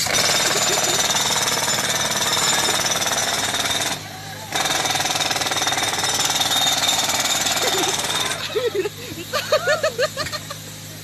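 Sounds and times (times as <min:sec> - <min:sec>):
jackhammer breaking pavement: 0:00.0 - 0:08.7.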